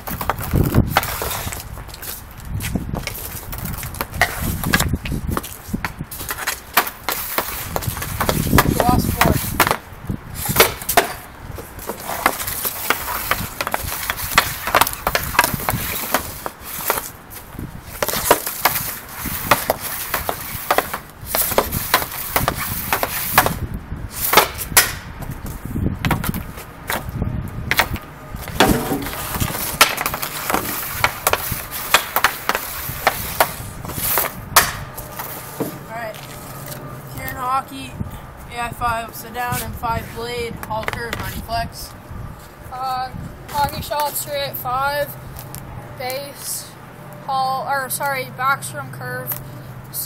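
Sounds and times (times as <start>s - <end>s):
hockey puck clacking on shooting pad: 6.3s - 9.8s, 18.0s - 23.6s, 27.7s - 34.8s.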